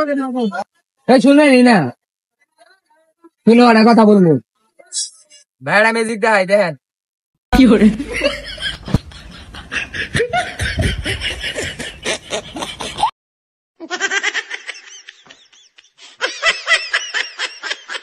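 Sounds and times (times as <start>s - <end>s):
laughter in bursts: 7.7s - 13.1s, 13.8s - 18.0s.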